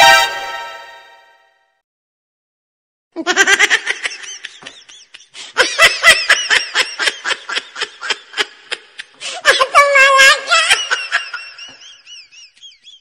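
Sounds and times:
person giggling: 3.2s - 9.8s, 10.4s - 13.0s.

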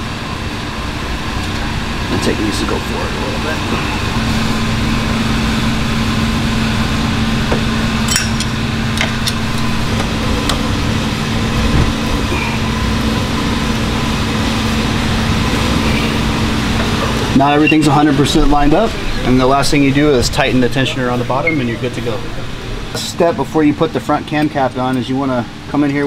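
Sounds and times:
air conditioning hum: 0.0s - 26.0s.

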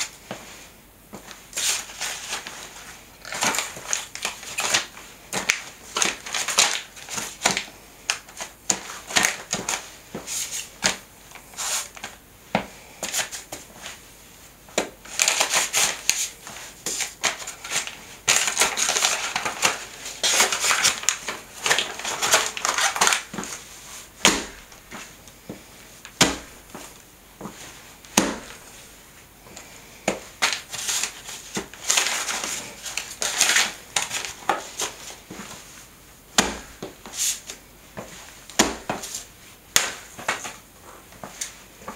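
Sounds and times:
paper crinkling under stomping shoes: 1.1s - 12.2s, 14.8s - 28.9s, 29.6s - 41.9s
sharp footsteps on tile: 24.2s - 28.8s, 36.4s - 41.9s.

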